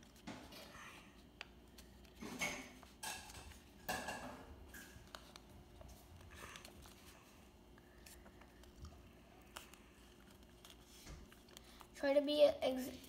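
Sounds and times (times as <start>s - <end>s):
paper rustling and creasing: 4.6s - 12.0s.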